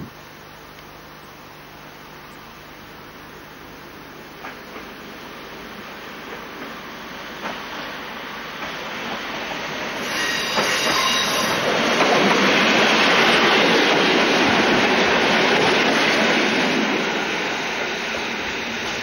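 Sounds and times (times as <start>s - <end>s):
diesel railcar passing: 2.0s - 19.0s
high wheel squeal: 10.0s - 11.7s.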